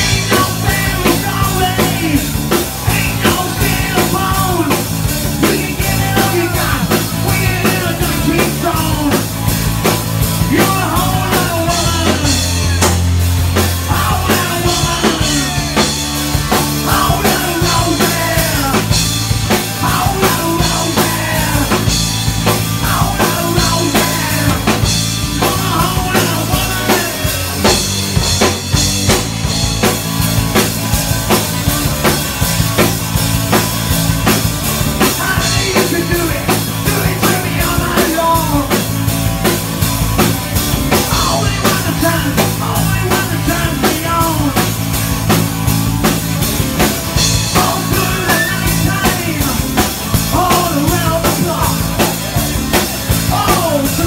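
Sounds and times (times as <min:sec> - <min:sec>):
man singing into a microphone: 0:00.0 - 0:09.3, 0:10.4 - 0:12.8, 0:13.8 - 0:15.9, 0:16.8 - 0:19.0, 0:19.6 - 0:22.0, 0:22.8 - 0:27.8, 0:35.0 - 0:38.8, 0:41.0 - 0:44.7, 0:47.5 - 0:52.4, 0:53.1 - 0:54.0
drum kit: 0:00.0 - 0:54.0
electric guitars: 0:00.0 - 0:54.0.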